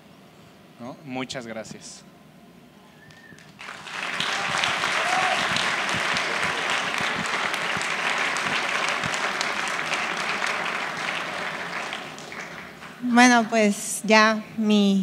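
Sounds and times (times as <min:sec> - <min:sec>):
crowd applauding: 0:03.1 - 0:13.5.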